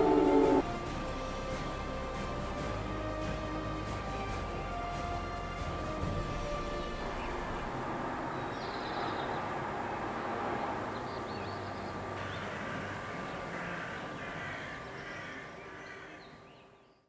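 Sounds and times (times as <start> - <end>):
crows cawing: 12.2 - 16.4.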